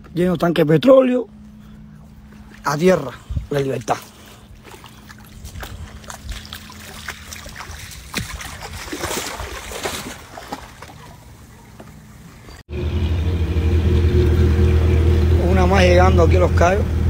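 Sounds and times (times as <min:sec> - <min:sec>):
water sloshing: 0:01.3 - 0:12.6
loud low rumble: 0:12.7 - 0:17.0.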